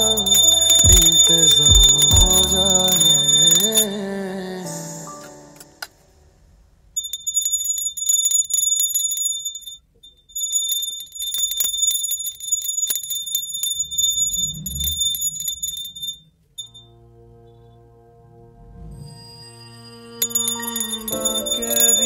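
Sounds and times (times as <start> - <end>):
small hand bell ringing rapidly: 0.0 - 3.7, 20.2 - 22.0.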